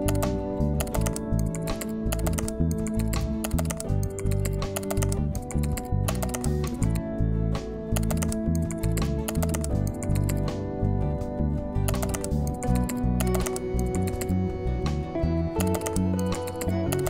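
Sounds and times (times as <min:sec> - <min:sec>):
keyboard typing clicks: 0:00.0 - 0:07.0, 0:08.0 - 0:10.5, 0:11.8 - 0:14.3, 0:15.6 - 0:17.0.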